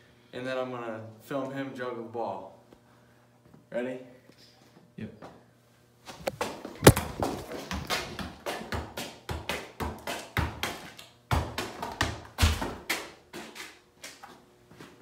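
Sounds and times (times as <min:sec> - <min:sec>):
shoe scuffs: 0:06.0 - 0:08.3
ball taps and thumps: 0:06.2 - 0:13.0.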